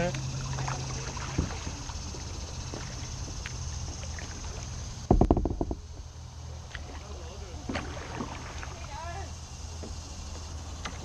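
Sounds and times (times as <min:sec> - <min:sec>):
kayak paddling rumble: 0:00.0 - 0:11.0
low thumps through plastic hull: 0:05.0 - 0:06.1.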